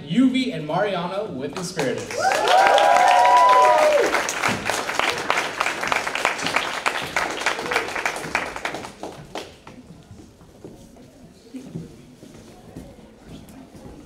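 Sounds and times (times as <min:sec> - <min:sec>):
audience applause: 0:01.9 - 0:09.7
people whooping: 0:02.1 - 0:05.4.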